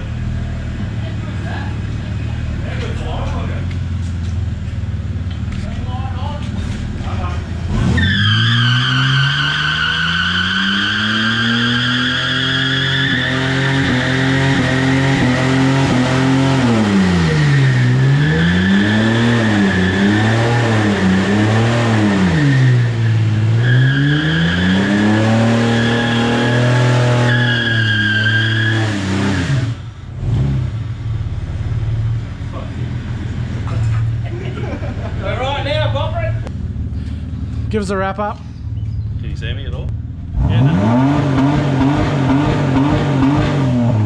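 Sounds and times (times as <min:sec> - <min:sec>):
car engine revving: 0:00.0 - 0:44.0
tyres spinning and squealing: 0:06.5 - 0:15.4, 0:16.7 - 0:29.8.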